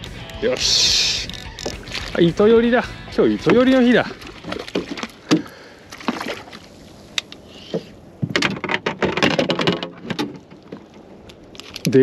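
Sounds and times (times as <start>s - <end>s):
fishing gear rattling and clattering: 0.6s - 6.5s, 8.2s - 12.0s
fishing gear knocks: 1.3s - 2.2s.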